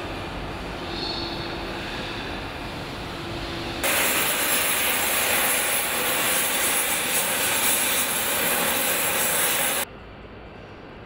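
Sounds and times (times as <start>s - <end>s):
gas torches hissing: 3.8s - 9.9s.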